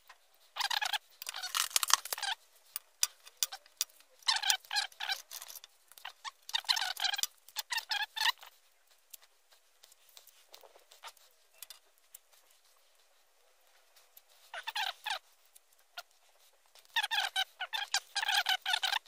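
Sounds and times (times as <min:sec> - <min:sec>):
screwdriver scraping and squeaking: 0:00.0 - 0:13.0, 0:14.0 - 0:19.0
small clicks: 0:00.1 - 0:08.5.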